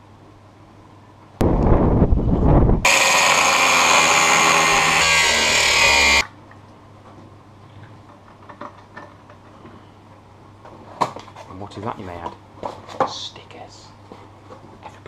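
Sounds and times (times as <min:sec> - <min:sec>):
angle grinder cutting metal: 0:02.9 - 0:06.2.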